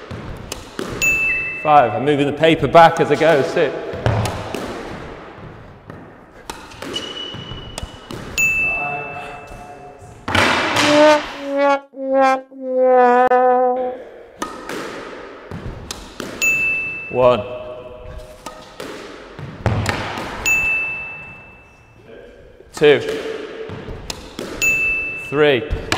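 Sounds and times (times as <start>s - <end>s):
squash ball knocks: 3.2s - 8.4s, 10.3s - 11.0s, 14.4s - 16.4s, 18.4s - 20.8s.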